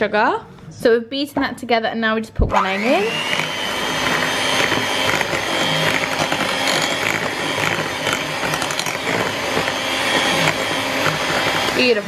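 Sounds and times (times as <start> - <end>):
electric hand mixer whine: 2.5 - 12.0
metal beaters rattling in bowl: 3.3 - 12.0.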